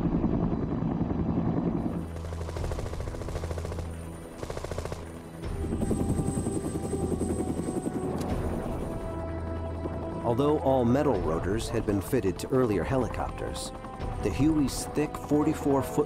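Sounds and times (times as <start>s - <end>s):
helicopter in flight: 0.0s - 10.4s
rapid machine-gun fire: 2.1s - 5.1s.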